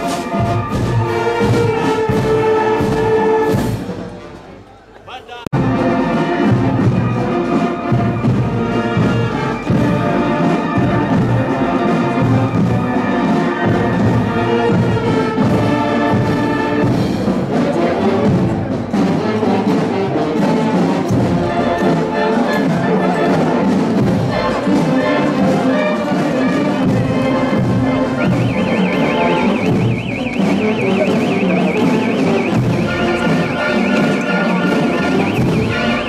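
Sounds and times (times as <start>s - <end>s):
marching band brass: 0.0s - 36.0s
steady drum beat: 26.5s - 36.0s.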